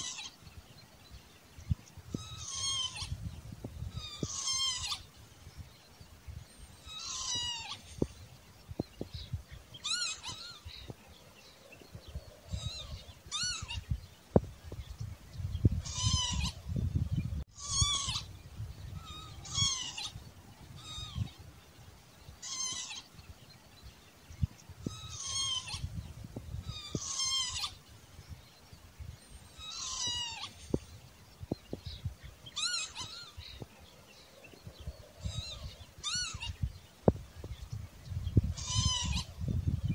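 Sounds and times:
lapwing calling: 0.0s - 0.5s, 1.7s - 5.2s, 6.6s - 8.2s, 9.2s - 11.0s, 11.7s - 14.1s, 15.6s - 21.6s, 22.3s - 23.3s, 24.4s - 28.4s, 29.1s - 39.9s.

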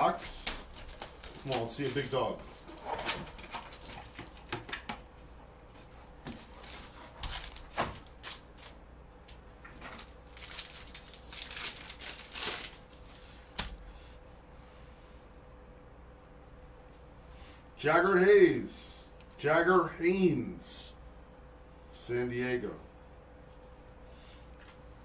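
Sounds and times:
wrapper crinkling and tearing: 0.3s - 4.2s, 7.2s - 8.8s, 10.0s - 13.7s.

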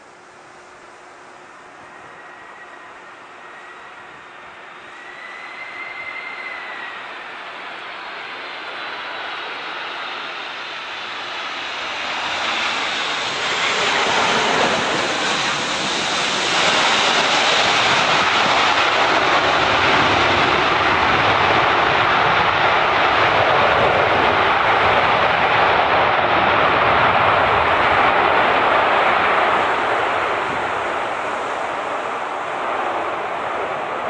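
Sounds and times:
jet engines reverse thrust roar: 0.0s - 34.0s.

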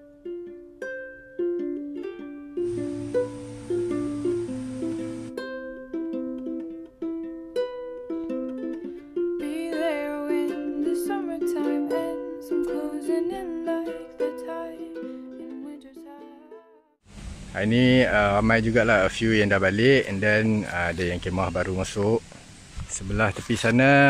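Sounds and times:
plucked string instrument: 0.0s - 16.9s
person singing: 9.4s - 16.9s.

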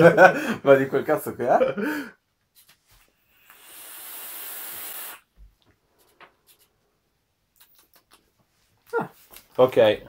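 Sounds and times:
electronic cigarette draw hiss: 3.2s - 5.3s.

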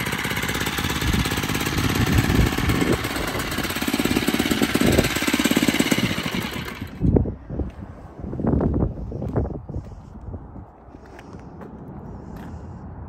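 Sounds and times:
small engine idling: 0.0s - 7.3s.

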